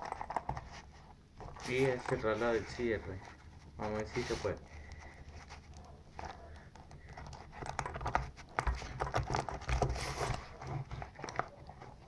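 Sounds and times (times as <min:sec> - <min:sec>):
pencil case bumps: 0:00.0 - 0:02.2, 0:06.2 - 0:12.0.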